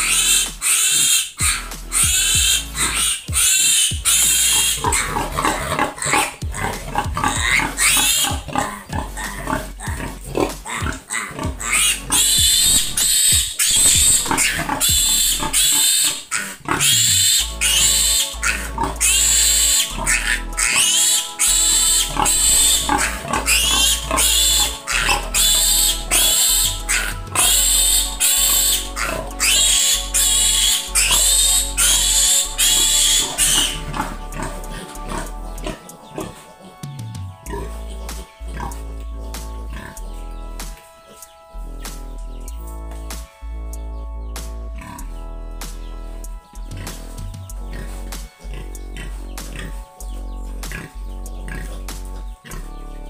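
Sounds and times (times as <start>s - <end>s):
piglet squealing: 0.0s - 42.2s
background music with held notes: 0.0s - 53.0s.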